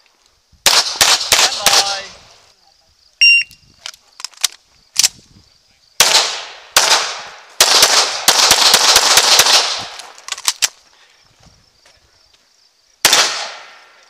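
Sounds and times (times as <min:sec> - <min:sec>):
pistol shots: 0:00.7 - 0:02.0, 0:06.0 - 0:10.0, 0:13.0 - 0:13.9.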